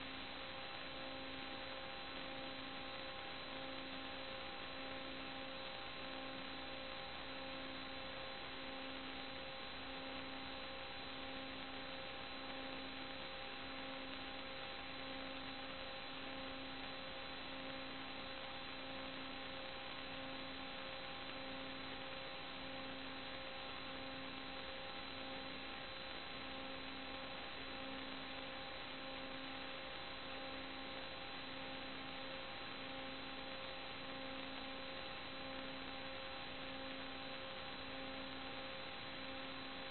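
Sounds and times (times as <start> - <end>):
electrical hum and hiss: 0.0 - 39.9.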